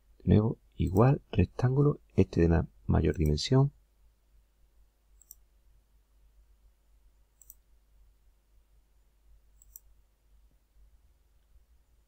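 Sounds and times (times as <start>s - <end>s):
computer mouse clicks: 5.2s - 5.5s, 7.4s - 7.6s, 9.6s - 10.0s.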